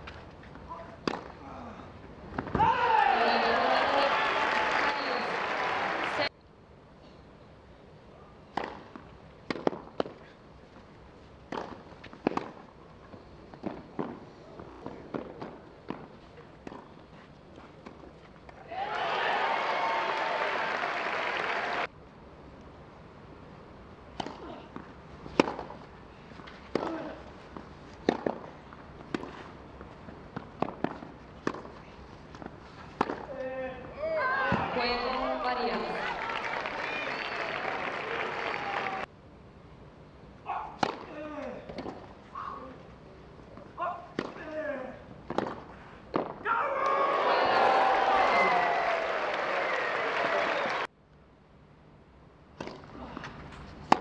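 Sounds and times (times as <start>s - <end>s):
tennis racquets striking ball: 1.0s - 1.4s, 8.5s - 10.2s, 11.5s - 12.7s, 13.6s - 14.2s, 24.1s - 25.8s, 26.4s - 27.2s, 28.0s - 29.5s, 30.3s - 33.3s, 40.8s - 42.1s, 44.1s - 44.5s, 45.2s - 46.4s, 52.6s - 52.9s
tennis racket hitting ball: 25.3s - 25.8s, 26.6s - 27.2s, 28.0s - 29.4s, 30.3s - 31.8s, 32.4s - 33.3s.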